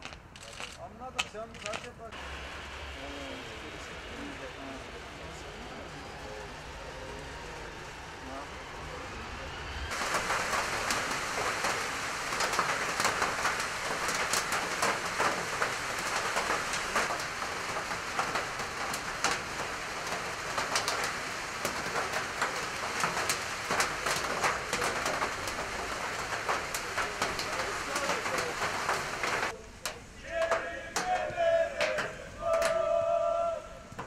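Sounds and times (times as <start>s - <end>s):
sharp ticks of raindrops: 0.0s - 2.5s, 9.9s - 32.9s
rain falling: 0.0s - 34.0s.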